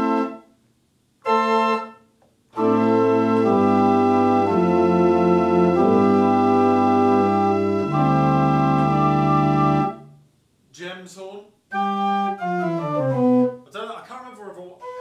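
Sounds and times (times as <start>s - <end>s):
church pipe organ chords: 0.0s - 0.4s, 1.2s - 2.0s, 2.6s - 10.2s, 11.8s - 13.6s.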